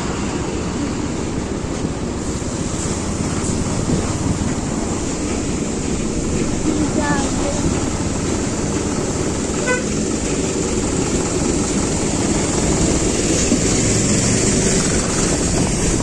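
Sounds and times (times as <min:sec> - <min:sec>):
horn toot: 0:09.6 - 0:10.0
wind on microphone: 0:10.5 - 0:16.0.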